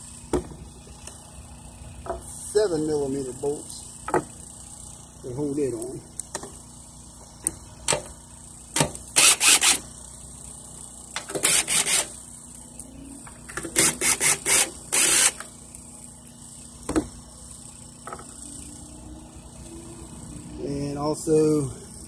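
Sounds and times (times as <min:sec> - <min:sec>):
cordless drill bursts: 0:08.6 - 0:10.0, 0:11.1 - 0:12.3, 0:13.5 - 0:15.6.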